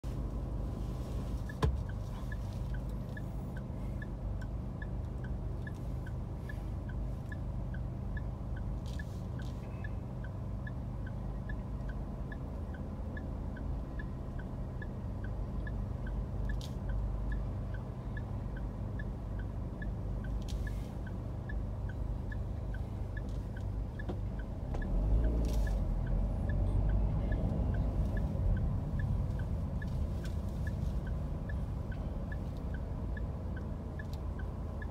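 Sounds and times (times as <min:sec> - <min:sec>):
engine and road rumble: 0:00.0 - 0:34.9
turn signal ticking: 0:00.0 - 0:34.9.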